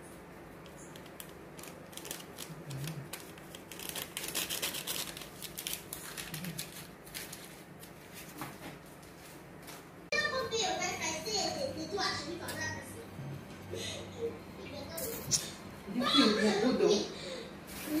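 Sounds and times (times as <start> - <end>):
paper sachet ticks and rustles: 0.6 - 9.8.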